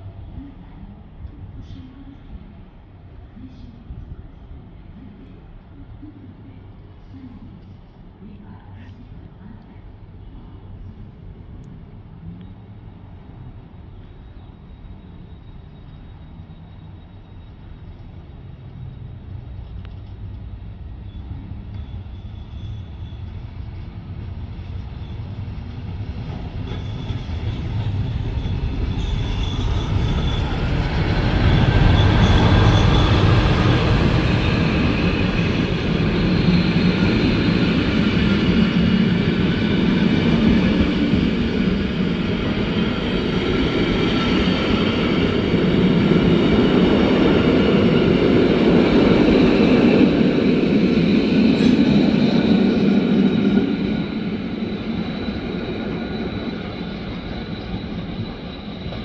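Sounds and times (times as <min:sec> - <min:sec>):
train wheels rumbling on rails: 0:00.0 - 0:59.0
high wheel squeal: 0:21.1 - 0:23.4, 0:26.3 - 0:39.8, 0:50.7 - 0:59.0.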